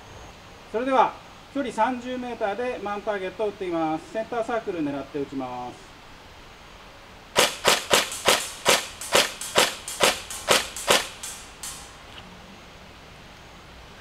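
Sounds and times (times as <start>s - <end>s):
airsoft gun firing bursts: 7.4s - 12.0s.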